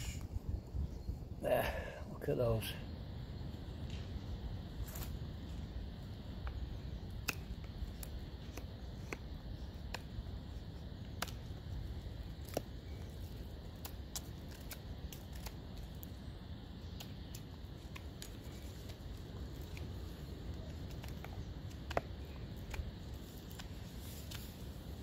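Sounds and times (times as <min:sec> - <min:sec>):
knife shaving wooden stick: 0:06.5 - 0:25.0.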